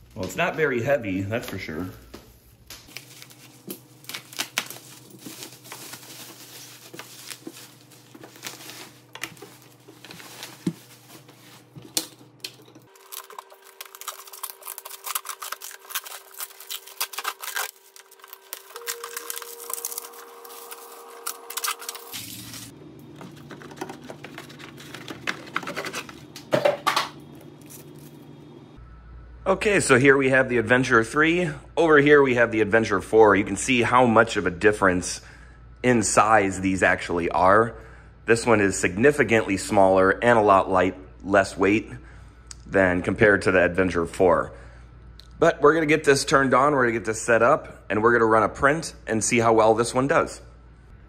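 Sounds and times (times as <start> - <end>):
bubble wrap crinkling and tearing: 1.8 - 12.2, 12.9 - 22.7.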